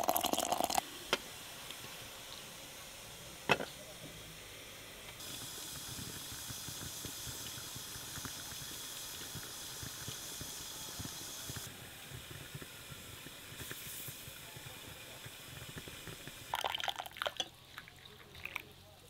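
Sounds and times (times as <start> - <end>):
kettle steam hissing: 0.0 - 19.0.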